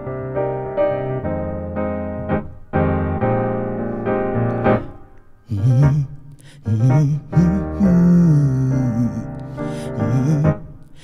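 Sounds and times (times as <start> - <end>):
piano chords: 0.0 - 11.0
person singing: 4.8 - 11.0.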